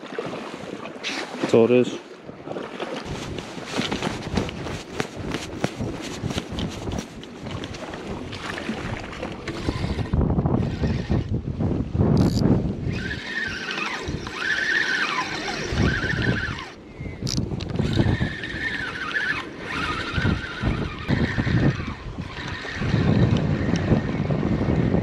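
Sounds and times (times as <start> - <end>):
wind buffeting microphone: 3.0 - 25.0
fishing reel gears whining: 9.5 - 11.3, 12.2 - 25.0.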